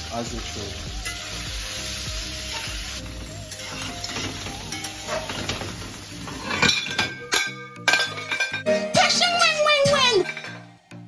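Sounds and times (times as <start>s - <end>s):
food sizzling in a frying pan: 0.0s - 11.0s
metal spatula scraping: 3.3s - 8.8s.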